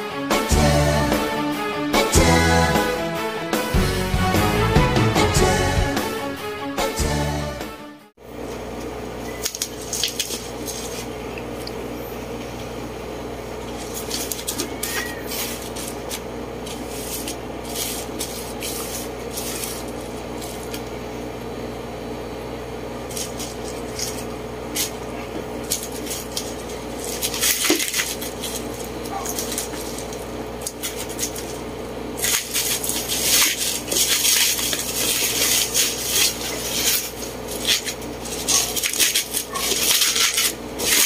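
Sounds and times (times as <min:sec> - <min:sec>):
steady hum: 0:00.0 - 0:41.0
bubble wrap crinkling: 0:09.3 - 0:11.2, 0:13.6 - 0:21.0, 0:23.0 - 0:41.0.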